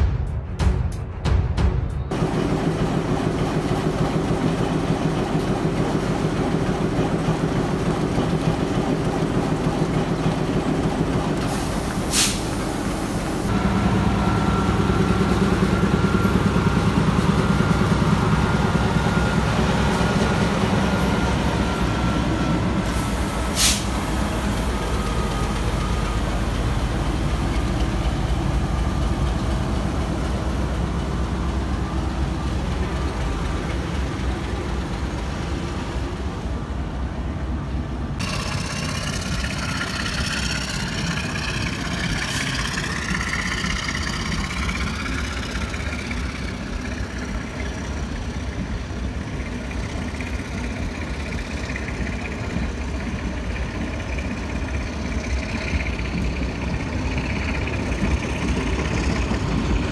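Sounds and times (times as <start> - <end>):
diesel locomotive engine pulsing: 0.0 - 59.9
train carriages rolling past: 2.0 - 59.9
sharp hisses: 11.5 - 13.5, 22.9 - 24.5.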